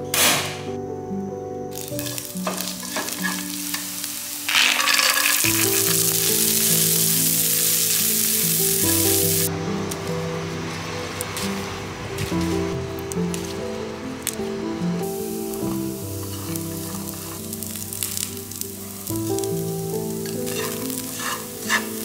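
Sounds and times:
chopsticks stirring corn: 1.8s - 6.6s, 15.7s - 22.0s
oil sizzling in frying pan: 1.8s - 10.0s, 15.0s - 22.0s.

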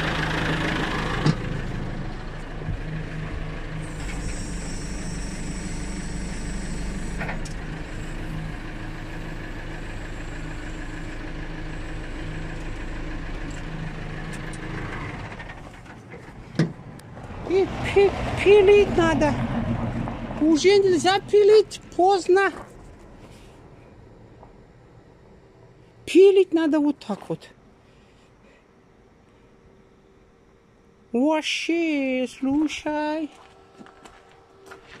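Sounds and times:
engine idling: 0.0s - 26.0s.

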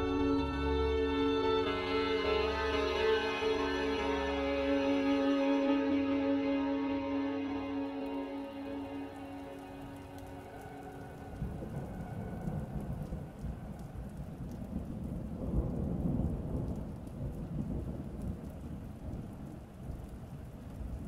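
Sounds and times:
music: 0.0s - 12.0s
rain: 0.0s - 21.0s
rolling thunder rumble: 9.8s - 21.0s.

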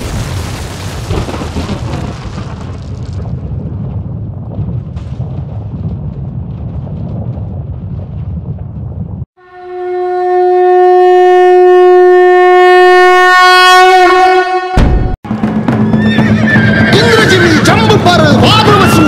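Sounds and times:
low rumble: 0.0s - 9.3s
long horn blast: 9.4s - 15.2s.

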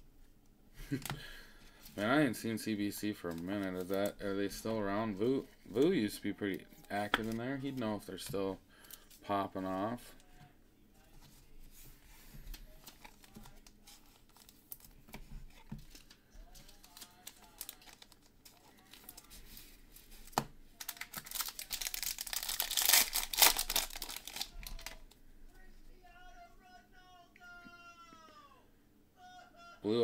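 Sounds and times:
foil wrapper tearing and crinkling: 16.7s - 19.3s, 20.8s - 25.1s.

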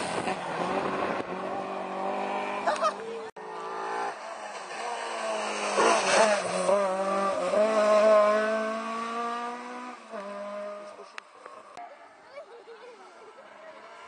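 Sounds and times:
rally car engine revving: 0.0s - 11.8s.

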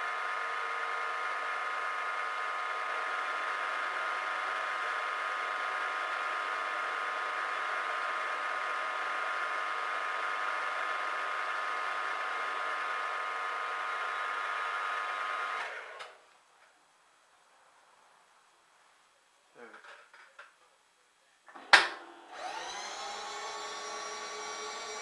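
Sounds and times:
milling machine whine: 22.3s - 25.0s.

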